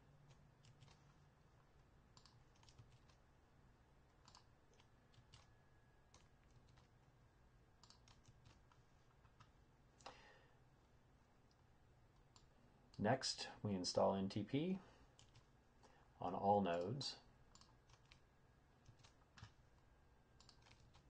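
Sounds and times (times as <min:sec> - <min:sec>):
keyboard typing clicks: 0:00.3 - 0:01.1, 0:02.1 - 0:03.2, 0:04.1 - 0:05.5, 0:06.1 - 0:06.9, 0:07.8 - 0:10.2, 0:15.2 - 0:15.5, 0:17.5 - 0:18.2, 0:18.8 - 0:19.6, 0:20.4 - 0:21.0.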